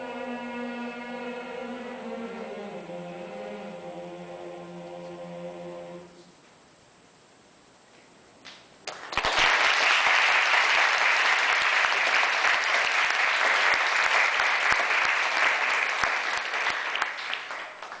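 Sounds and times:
audience applause: 0:08.9 - 0:18.0.

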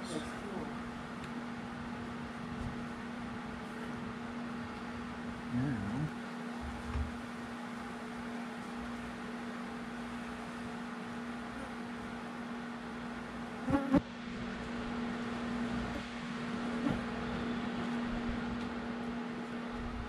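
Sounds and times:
low mechanical hum: 0:00.0 - 0:20.0
low murmur of voice: 0:05.5 - 0:06.1.

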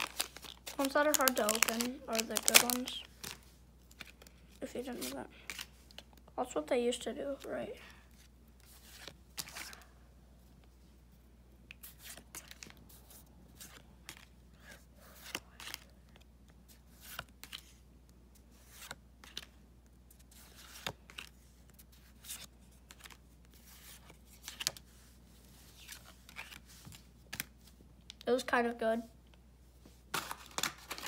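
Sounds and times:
cards flipping with soft swishes: 0:02.6 - 0:06.2, 0:07.3 - 0:09.9, 0:11.7 - 0:27.8.

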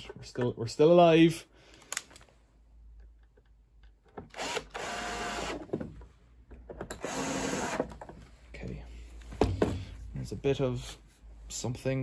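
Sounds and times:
electric screwdriver running: 0:04.4 - 0:05.6, 0:07.0 - 0:07.9.

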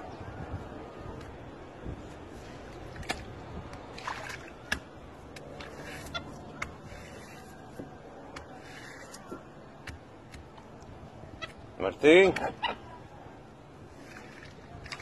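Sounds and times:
brush scrubbing wet cloth: 0:05.6 - 0:07.8.

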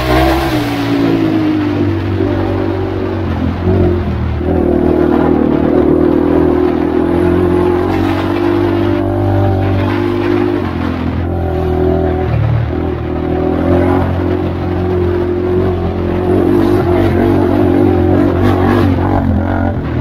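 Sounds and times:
atv engine running: 0:00.0 - 0:20.0.

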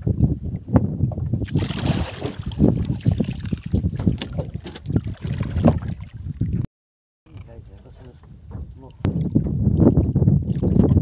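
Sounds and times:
wind buffeting microphone: 0:00.0 - 0:06.7, 0:07.4 - 0:11.0
water slapping against boat hull: 0:01.4 - 0:06.6
short knocks from boat: 0:03.9 - 0:05.9, 0:08.2 - 0:09.6.

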